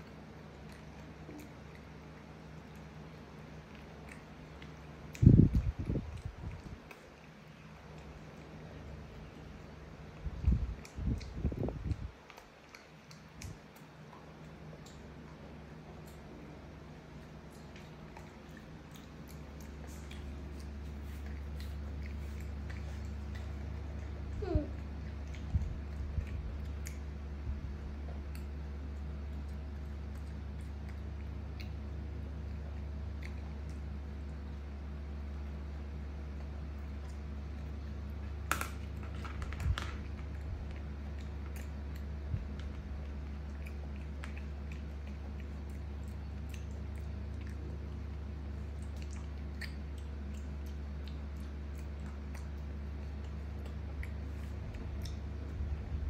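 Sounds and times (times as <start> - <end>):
monkey chewing: 0.0 - 34.4, 36.3 - 55.9
low hum: 0.0 - 56.0.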